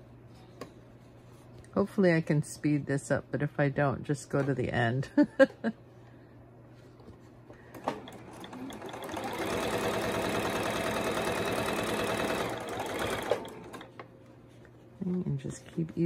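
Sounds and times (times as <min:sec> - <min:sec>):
sewing machine stitching: 0:07.7 - 0:13.9.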